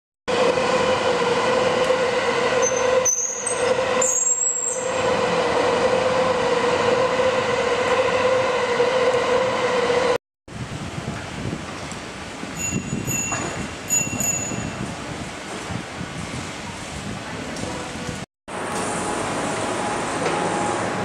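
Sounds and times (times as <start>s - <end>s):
train rumbling on viaduct: 0.3s - 21.0s
high squeals: 2.6s - 5.0s, 12.6s - 14.8s.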